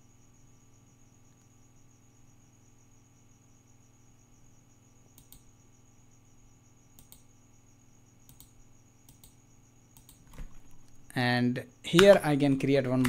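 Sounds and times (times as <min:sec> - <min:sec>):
faint electrical hum: 0:00.0 - 0:13.0
computer mouse clicks: 0:05.1 - 0:05.5, 0:07.0 - 0:07.3, 0:08.2 - 0:09.4, 0:10.0 - 0:11.0.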